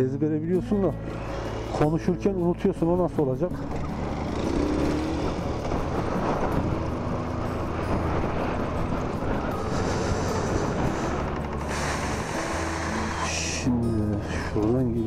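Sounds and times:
road noise: 0.0s - 15.0s
motorcycle engine running: 3.5s - 11.7s.

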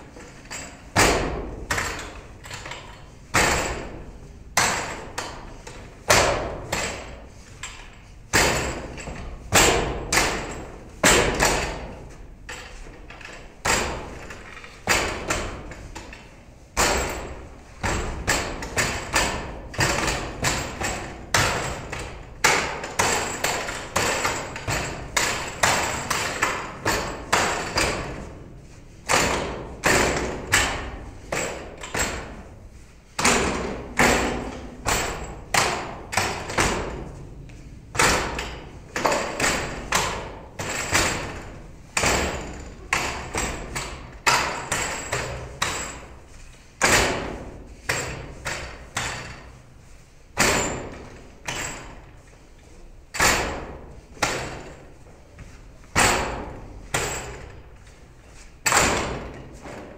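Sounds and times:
kicks against wooden dummy: 1.0s - 2.2s, 8.3s - 12.1s, 16.8s - 32.4s, 33.2s - 46.1s, 46.8s - 49.5s, 58.6s - 59.9s.

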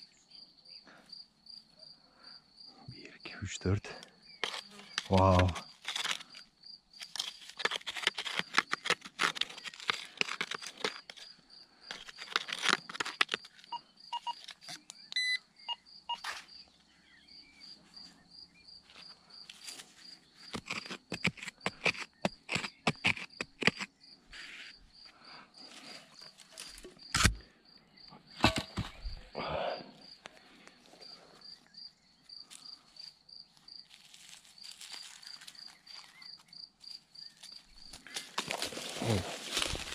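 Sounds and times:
hands scraping through soil and stones: 4.4s - 14.9s, 18.9s - 24.8s, 32.4s - 39.9s.

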